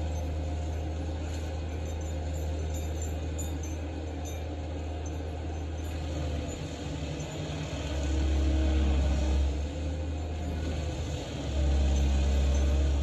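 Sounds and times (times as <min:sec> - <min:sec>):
stump grinder engine running: 0:00.0 - 0:13.0
cutter wheel grinding stump: 0:06.0 - 0:13.0.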